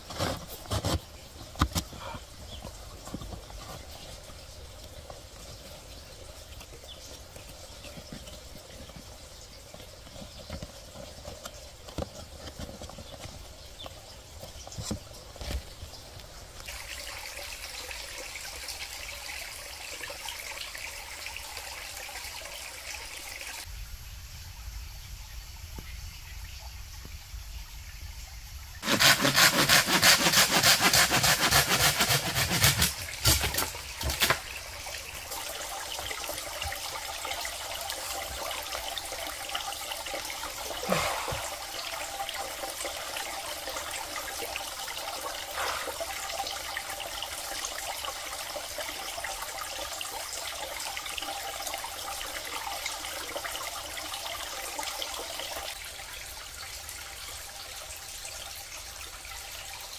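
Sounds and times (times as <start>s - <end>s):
trickling water: 0.0s - 23.7s, 25.2s - 59.9s
loud rough rasping noise: 28.8s - 33.6s.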